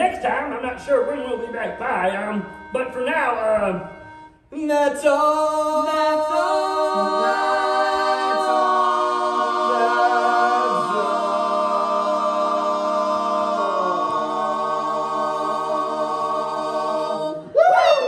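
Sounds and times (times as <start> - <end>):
voices singing in harmony: 4.8 - 18.0.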